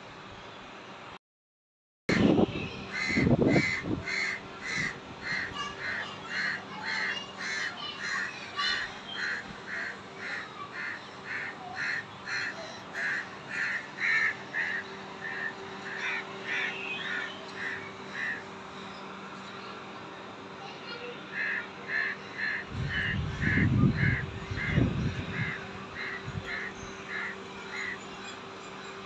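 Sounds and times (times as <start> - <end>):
wind rumble on microphone: 2.1 - 5.6, 22.6 - 27.0
bird calling repeatedly: 2.9 - 18.5, 21.3 - 29.0.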